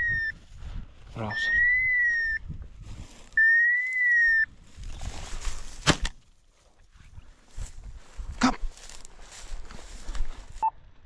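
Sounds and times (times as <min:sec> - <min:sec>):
whistle blown: 0:01.3 - 0:02.4, 0:03.4 - 0:04.5
soft rustling: 0:07.5 - 0:10.6.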